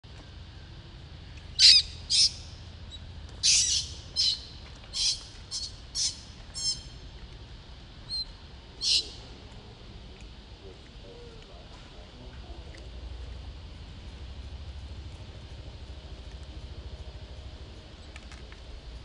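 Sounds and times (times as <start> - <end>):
baby monkey screaming: 1.6 - 2.4, 3.4 - 6.9, 8.8 - 9.2.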